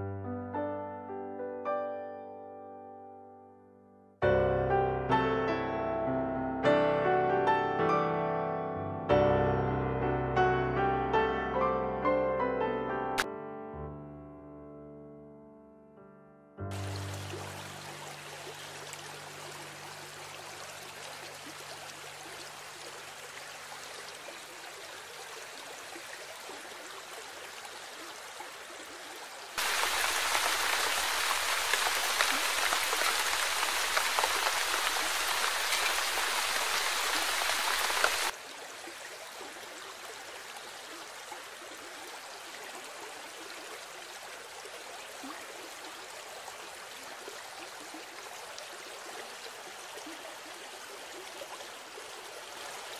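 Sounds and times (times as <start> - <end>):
rain: 16.7 - 52.9
rushing floodwater: 16.7 - 52.9
water rushing: 16.7 - 52.9.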